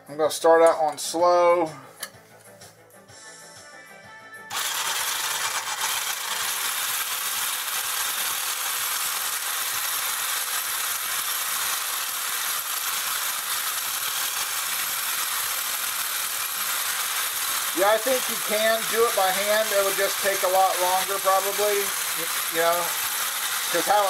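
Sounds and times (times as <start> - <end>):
blender whirring: 4.5 - 24.0
whisk rattling against metal bowl: 15.5 - 24.0.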